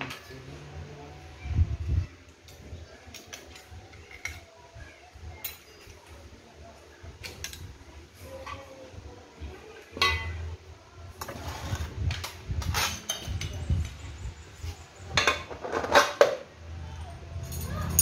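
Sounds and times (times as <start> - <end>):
metal parts scraping: 12.6 - 13.4
small metal parts clinking: 17.3 - 18.0.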